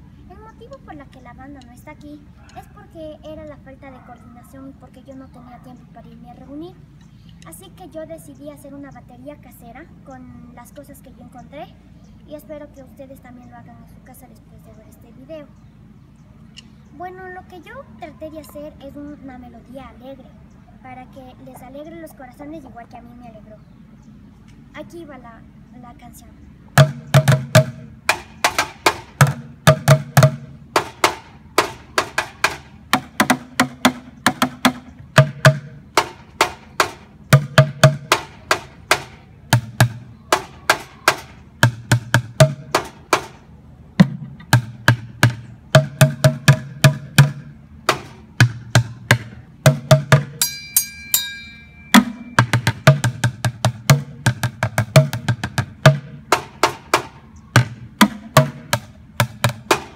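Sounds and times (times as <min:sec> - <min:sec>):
drumsticks beating buckets: 0:26.8 - 0:43.4, 0:44.0 - 0:59.9
high ringing tone: 0:50.4 - 0:52.5.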